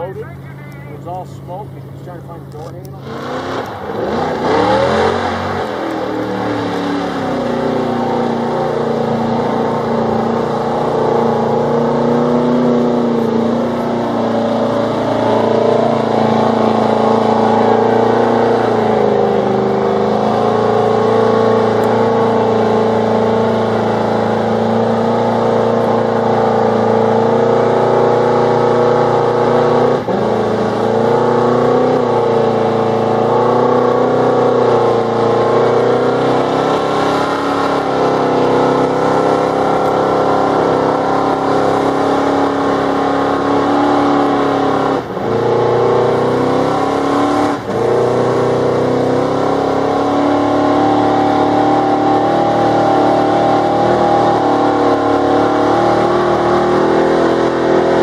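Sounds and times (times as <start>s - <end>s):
truck engine revving in mud: 1.3s - 58.0s.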